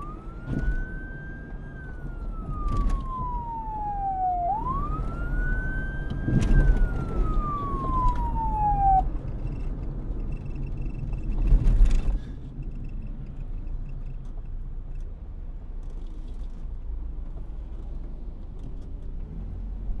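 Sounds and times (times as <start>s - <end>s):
police siren sliding down: 0.0s - 9.3s.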